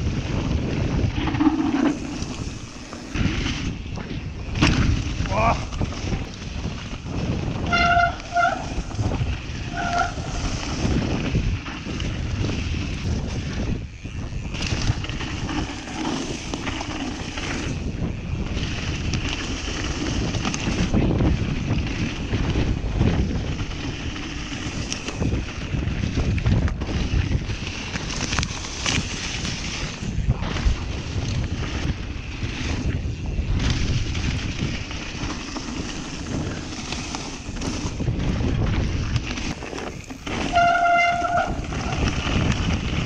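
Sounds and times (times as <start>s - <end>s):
bike knocks and rattles: 0.0s - 43.0s
tyres rumbling on trail: 0.0s - 43.0s
wind buffeting microphone: 0.0s - 43.0s
high squeal: 7.7s - 8.9s, 40.4s - 42.0s.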